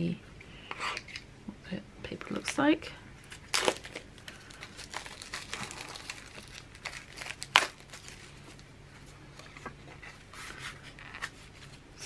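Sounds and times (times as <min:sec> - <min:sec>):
packaging crinkling: 0:03.2 - 0:08.7.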